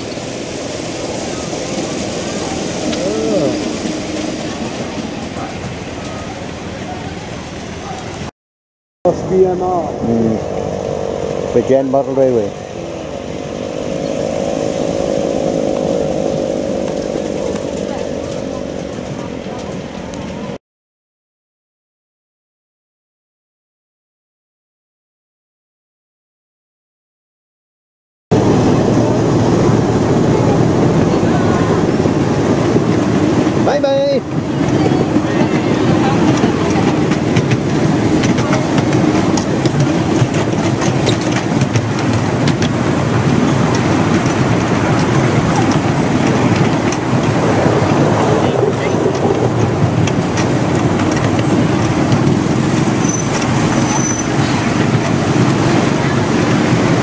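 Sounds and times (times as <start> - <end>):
miniature train rumbling on track: 0.0 - 8.3, 9.1 - 20.6, 28.3 - 57.0
wind on microphone: 9.1 - 20.6, 28.3 - 57.0.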